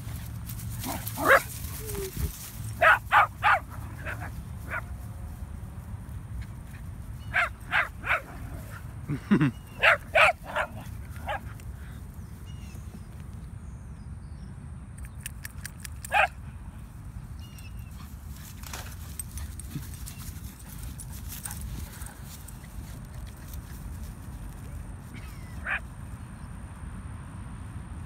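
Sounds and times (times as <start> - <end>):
dogs barking: 0.8 - 2.1, 2.7 - 4.9, 7.2 - 8.8, 9.4 - 11.6, 16.1 - 16.4, 25.2 - 25.9.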